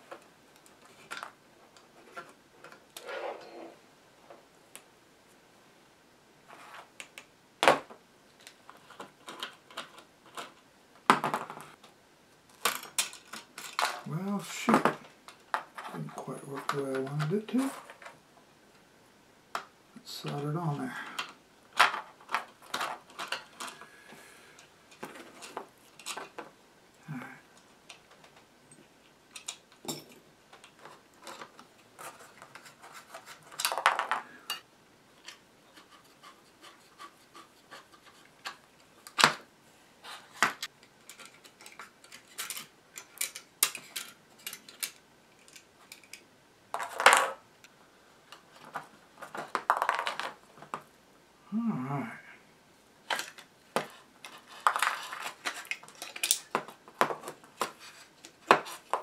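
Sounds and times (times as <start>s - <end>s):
scraping rustles: 30.8s - 34.6s, 53.1s - 59.0s.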